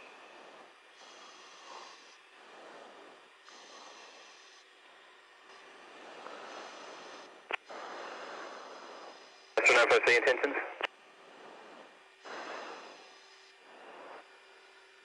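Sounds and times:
radio intercom hiss: 0:09.6 - 0:10.9
radio transmission click: 0:09.6 - 0:10.9.

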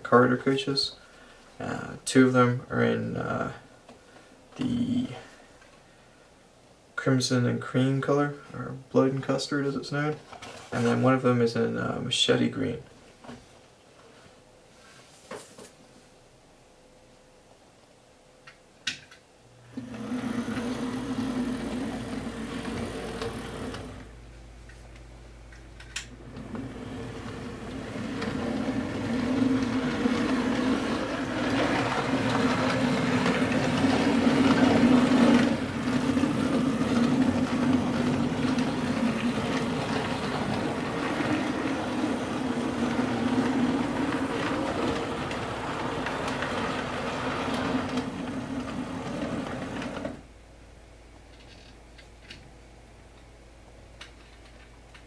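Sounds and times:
wheels on rails: 0:19.7 - 0:24.2, 0:26.0 - 0:50.3
model train motor buzzing: 0:19.8 - 0:24.1.

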